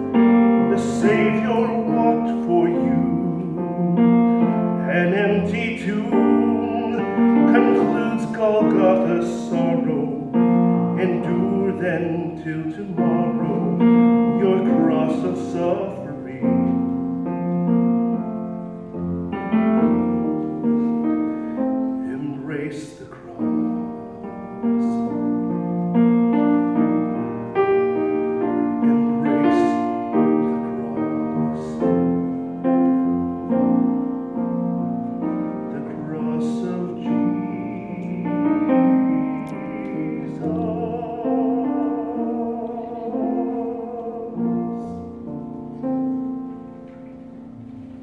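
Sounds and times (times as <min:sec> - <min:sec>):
piano playing hymn-style song: 0:00.0 - 0:48.0
tenor voice singing with vibrato: 0:00.6 - 0:16.7, 0:35.7 - 0:45.5.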